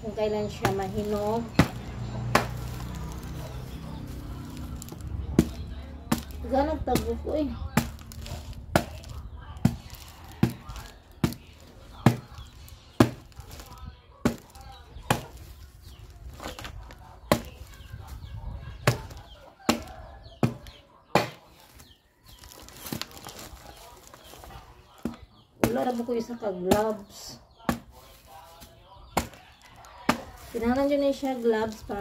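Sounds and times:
knife chopping into fruit: 0.6s - 3.2s, 4.8s - 15.6s, 17.3s - 17.6s, 18.8s - 21.5s, 27.7s - 28.0s, 28.6s - 31.0s.

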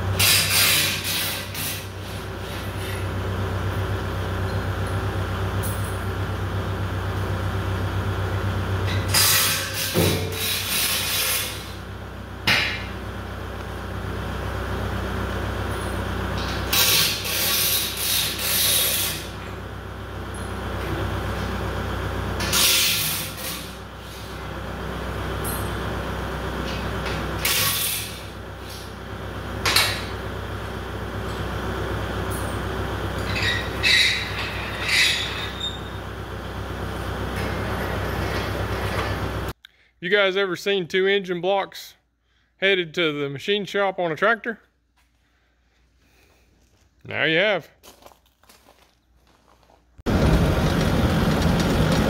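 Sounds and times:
low engine hum: 50.0s - 52.0s.

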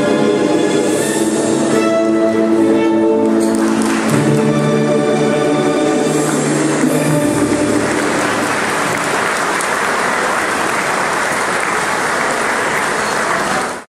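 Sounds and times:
audience applauding: 3.4s - 4.5s, 5.7s - 13.9s.

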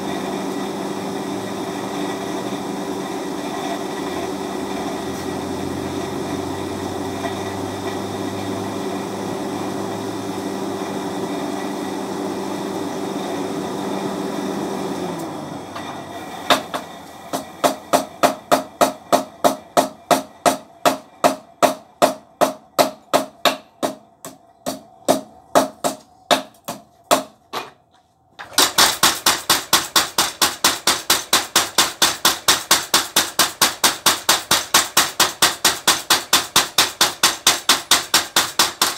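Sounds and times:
power hammer forging iron: 15.7s - 26.6s, 28.5s - 38.9s.

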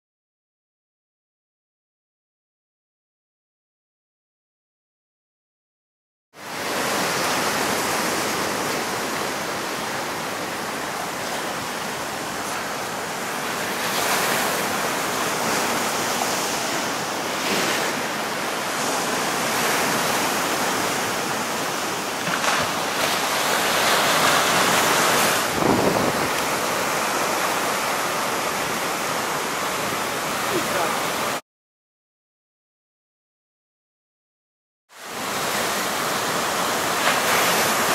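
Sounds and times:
waves crashing on rocks: 6.4s - 31.4s, 35.0s - 37.9s.

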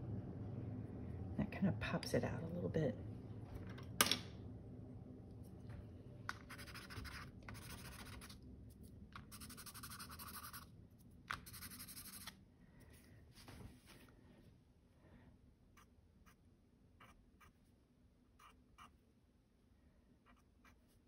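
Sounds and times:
pencil scratching on paper: 6.5s - 8.4s, 9.2s - 10.7s, 11.4s - 12.4s, 18.4s - 19.0s, 20.2s - 21.0s.

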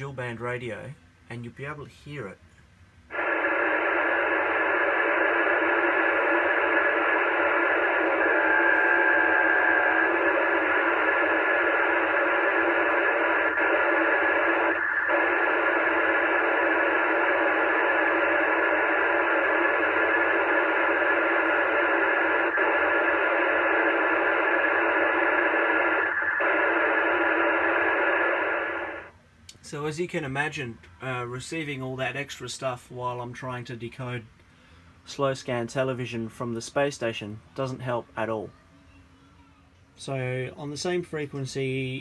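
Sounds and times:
radio speaker tinny interference noise: 3.1s - 29.2s.

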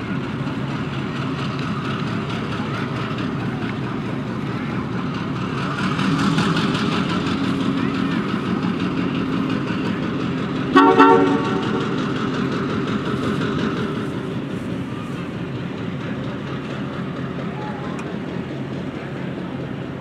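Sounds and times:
diesel locomotive running: 0.0s - 20.0s
train horn toot: 10.7s - 12.0s.

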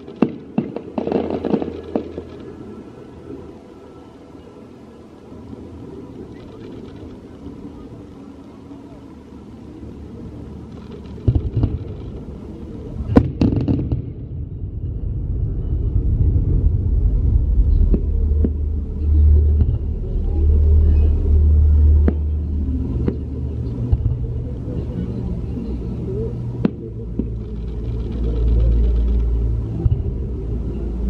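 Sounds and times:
firework bangs: 0.0s - 2.6s, 10.8s - 12.3s, 13.1s - 20.2s, 21.9s - 24.4s
tram rumbling past: 0.0s - 31.0s.

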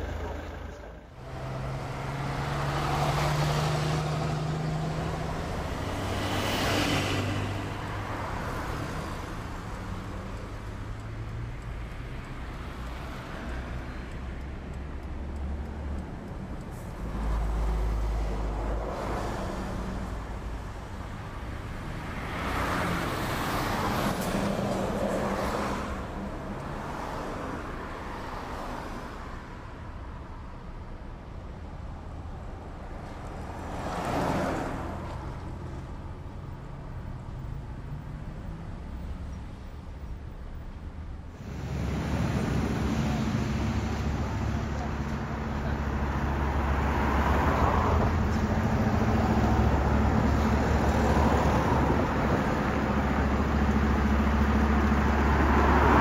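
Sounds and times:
fire engine diesel engine running: 0.0s - 1.6s.

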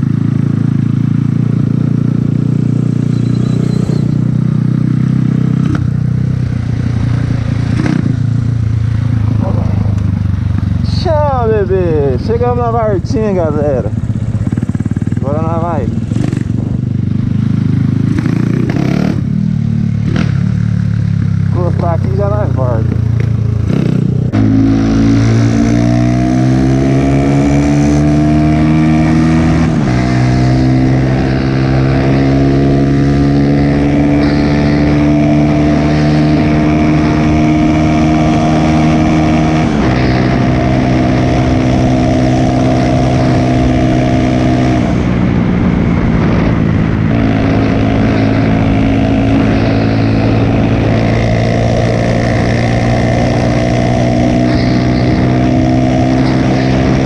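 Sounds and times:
motorcycle accelerating through gears: 0.0s - 57.0s
wind rush: 6.6s - 19.4s, 28.3s - 57.0s.

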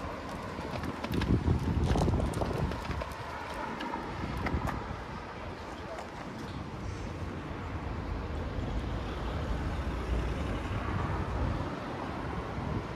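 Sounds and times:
street traffic rumbling: 0.0s - 12.9s.

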